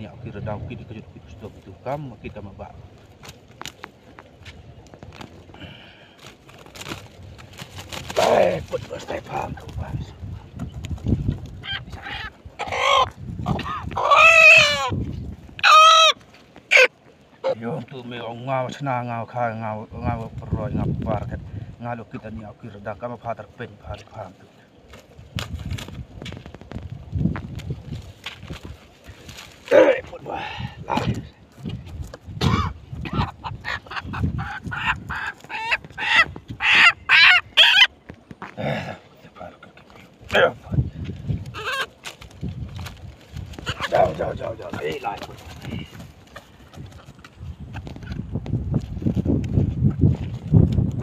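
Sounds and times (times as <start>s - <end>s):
rooster clucking: 11.6s - 15.0s, 15.6s - 17.6s, 32.4s - 38.0s, 41.5s - 42.0s, 43.6s - 45.3s.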